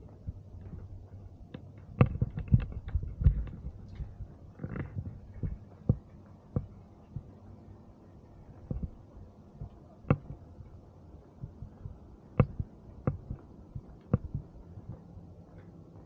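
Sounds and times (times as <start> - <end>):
faint low hum: 0.0 - 16.0
sharp knocks and thumps: 1.5 - 7.4, 8.6 - 9.0, 9.6 - 10.4, 11.4 - 15.1.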